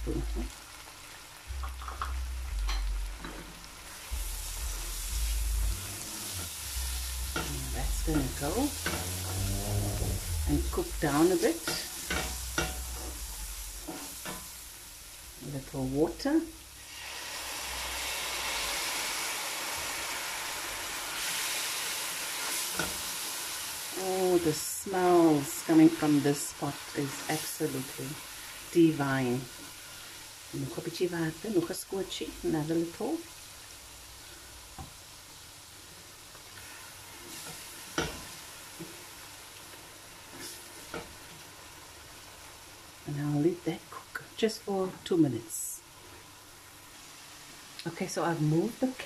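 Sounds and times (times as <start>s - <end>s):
curry sizzling in a pot: 0.0s - 49.0s
water poured into hot oil: 16.8s - 24.0s.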